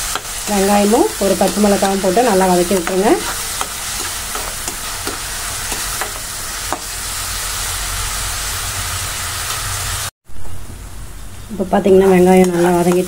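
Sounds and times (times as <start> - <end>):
onions sizzling in oil: 0.0 - 10.1, 11.8 - 13.0
spatula scraping and tapping: 2.7 - 6.9.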